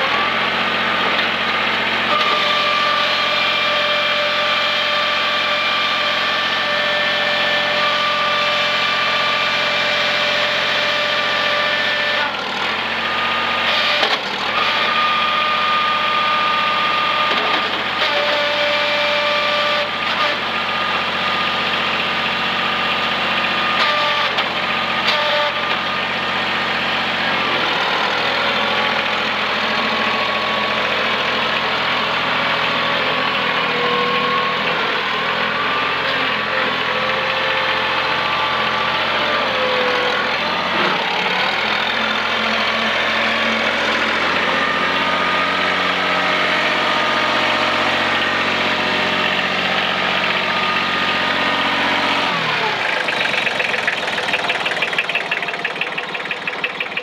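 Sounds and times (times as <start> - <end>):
skid steer engine running: 0.0 - 57.0
fast rhythmic clatter: 52.8 - 57.0.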